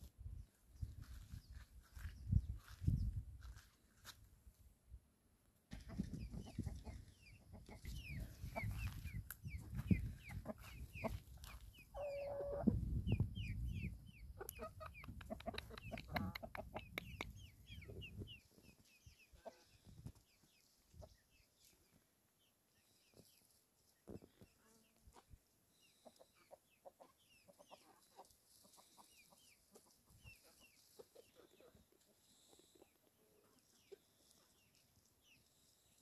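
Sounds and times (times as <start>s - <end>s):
chickens clucking: 5.7s - 22.0s, 24.0s - 35.4s
high chirping calls: 6.2s - 19.4s.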